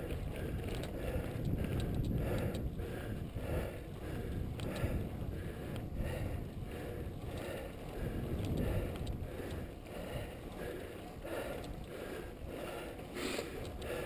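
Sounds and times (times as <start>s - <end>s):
wind rushing over microphone: 0.0s - 10.5s
bicycle tyre road noise: 0.0s - 14.0s.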